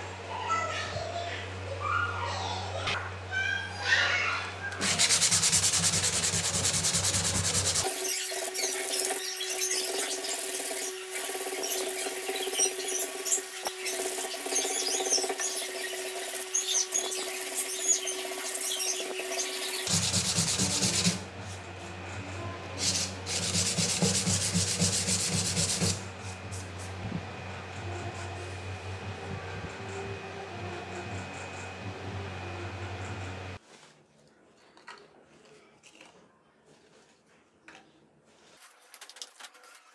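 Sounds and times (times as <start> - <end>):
abrasive paper rubbing on metal: 4.8 - 22.0, 22.7 - 27.0.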